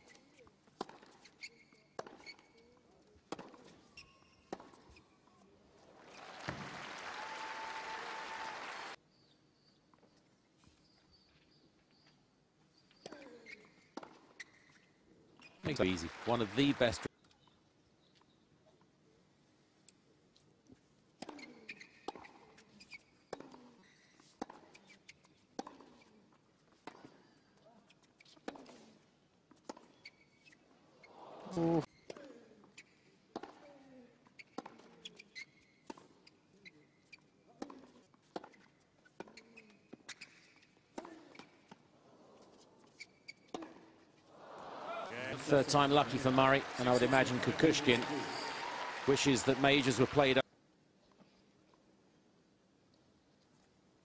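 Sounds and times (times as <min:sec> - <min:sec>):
tennis ball bouncing on hard court: 0:00.7 - 0:02.6, 0:03.2 - 0:05.0, 0:06.4 - 0:06.8, 0:21.2 - 0:22.6, 0:23.2 - 0:26.1, 0:28.2 - 0:28.9, 0:29.5 - 0:30.6, 0:33.3 - 0:33.7, 0:34.3 - 0:36.2, 0:37.0 - 0:41.8, 0:42.9 - 0:43.9
crowd noise: 0:05.8 - 0:09.0, 0:15.6 - 0:17.1, 0:44.3 - 0:50.4
racket striking tennis ball: 0:37.6 - 0:39.4, 0:43.5 - 0:43.9.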